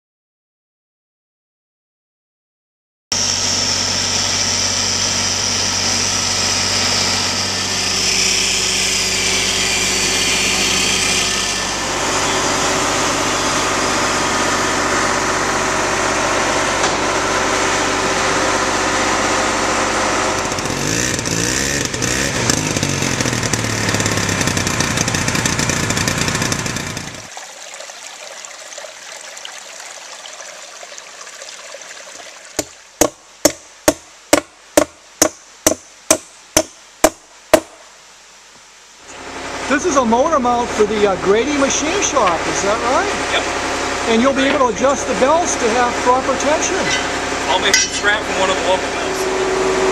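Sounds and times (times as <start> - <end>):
engine droning: 3.2 - 27.3, 39.1 - 49.9
water trickling in a stream: 27.3 - 33.0.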